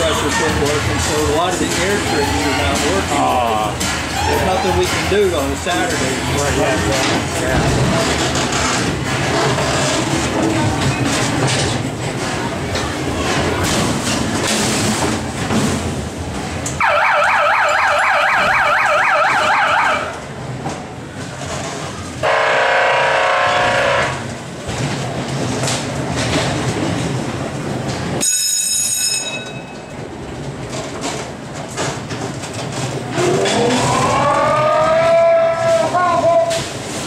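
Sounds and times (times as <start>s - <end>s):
warbling electronic alarm: 16.8s - 20.1s.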